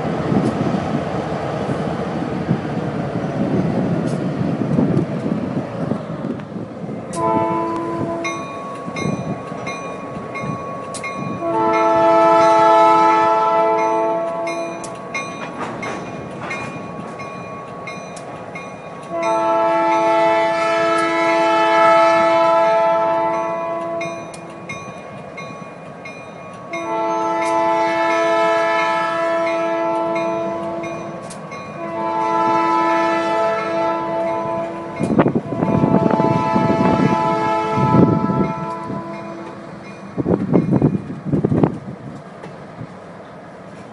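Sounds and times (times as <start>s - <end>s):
freight train rumbling: 0.0s - 43.9s
locomotive air horn blasts: 7.1s - 8.4s, 11.3s - 14.7s, 19.1s - 24.2s, 26.8s - 31.0s, 31.7s - 39.6s.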